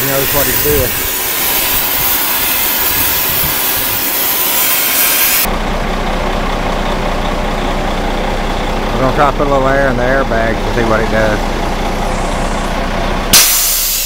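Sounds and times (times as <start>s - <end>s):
gas torch hissing: 0.0s - 5.5s, 11.9s - 12.7s, 13.3s - 14.0s
truck engine idling: 5.4s - 14.0s.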